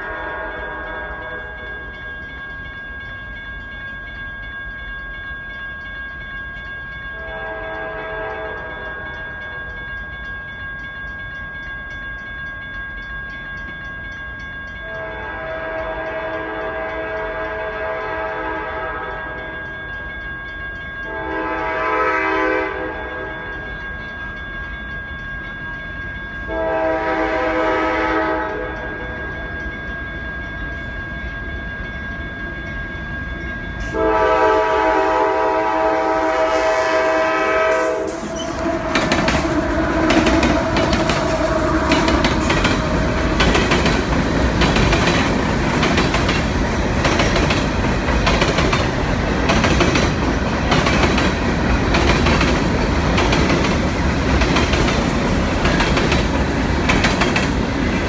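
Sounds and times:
locomotive air horn blasts: 0.0 - 1.7, 7.2 - 9.0, 14.9 - 19.3, 21.1 - 23.4, 26.5 - 28.8, 33.9 - 42.2
low train rumble: 0.0 - 58.0.

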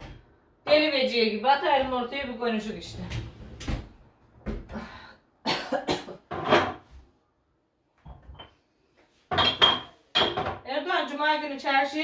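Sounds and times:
woman coughing: 5.4 - 6.3.

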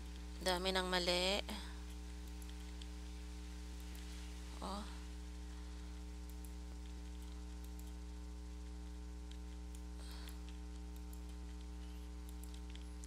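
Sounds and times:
electrical mains hum: 0.0 - 13.0
faint mouse clicks: 2.2 - 3.0, 6.2 - 8.0, 9.2 - 13.0.

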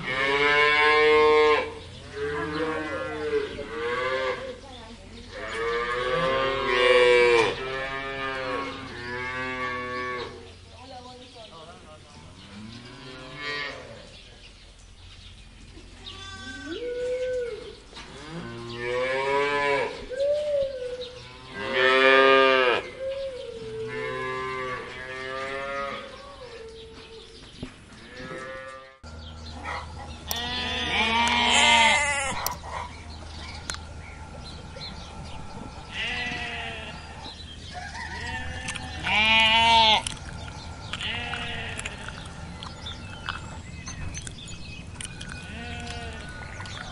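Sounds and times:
cattle mooing: 0.0 - 4.5, 5.3 - 10.4, 21.3 - 22.9, 23.7 - 26.2, 30.3 - 32.5, 35.7 - 37.3, 38.2 - 40.2, 40.9 - 42.5
sheep bleating: 16.0 - 16.8, 30.3 - 32.5, 35.9 - 37.0, 38.2 - 40.2, 41.0 - 42.0, 45.4 - 46.3.

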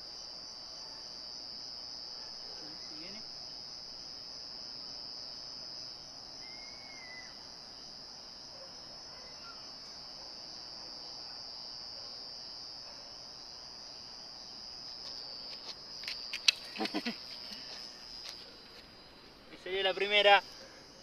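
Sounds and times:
crickets trilling: 0.0 - 21.0.

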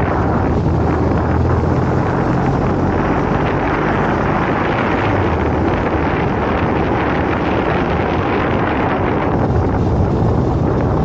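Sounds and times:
wind noise on microphone: 0.0 - 11.0.

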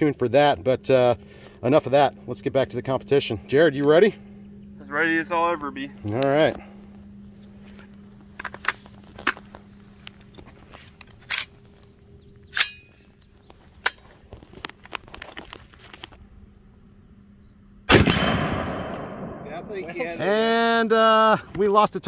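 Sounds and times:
rifle shot with echo: 17.9 - 19.8.

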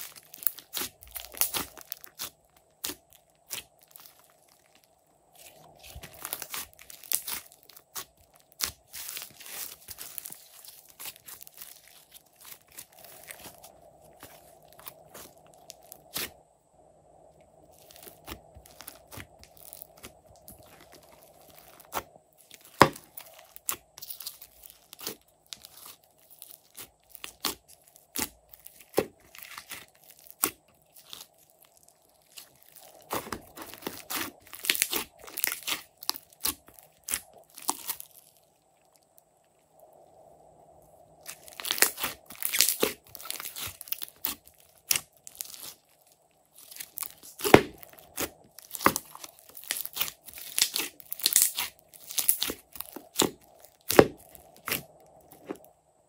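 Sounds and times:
slime crackling and popping: 0.0 - 16.3, 17.7 - 39.1, 41.2 - 55.7.

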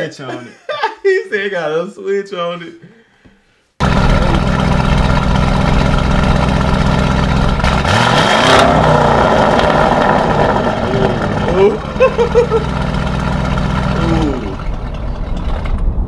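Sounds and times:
car engine idling and revving: 3.8 - 16.0.

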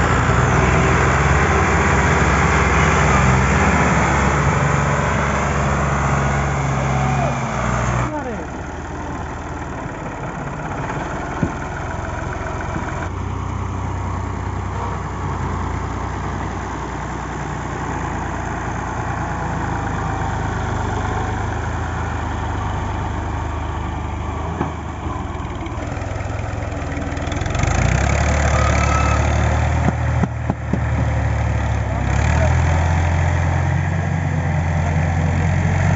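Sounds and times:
tractor diesel engine under load: 0.0 - 35.9.

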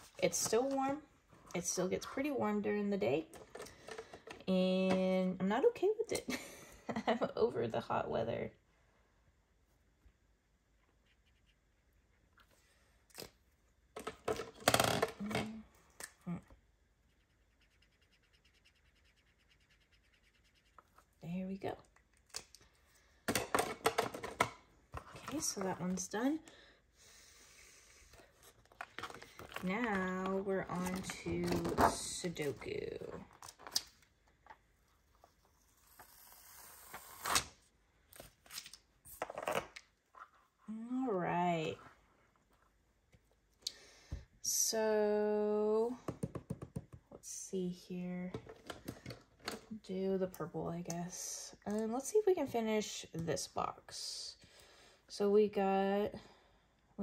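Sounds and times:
paper and plastic crinkling: 28.4 - 32.6.

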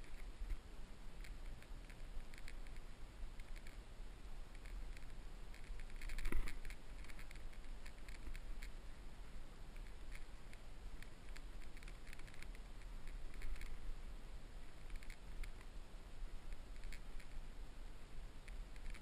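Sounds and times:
bow gear clicking and rustling: 0.0 - 3.8, 4.5 - 8.8, 9.7 - 13.8, 14.7 - 15.7, 16.5 - 17.4, 18.5 - 19.0.

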